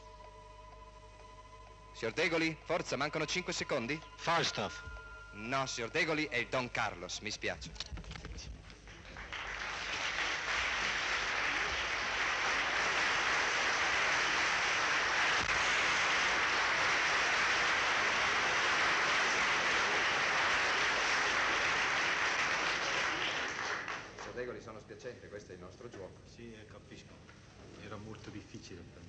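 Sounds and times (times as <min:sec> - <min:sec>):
studio audience applauding: 0:08.9 - 0:24.6.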